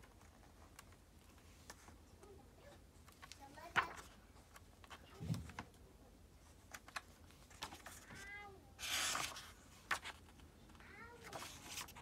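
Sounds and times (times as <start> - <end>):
book pages turning: 3.0 - 5.7, 6.4 - 12.0.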